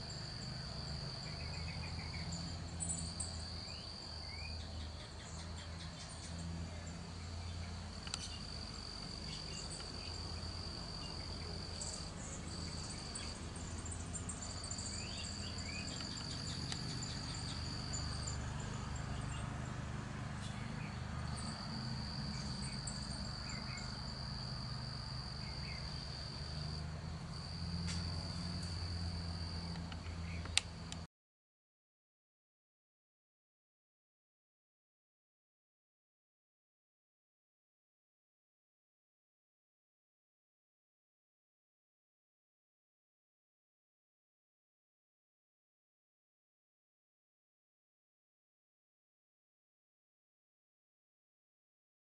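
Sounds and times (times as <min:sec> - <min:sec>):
insects trilling: 0:00.0 - 0:19.4, 0:20.4 - 0:30.6
low background hum: 0:00.0 - 0:31.1
bird chirps: 0:01.0 - 0:19.7, 0:22.3 - 0:24.1.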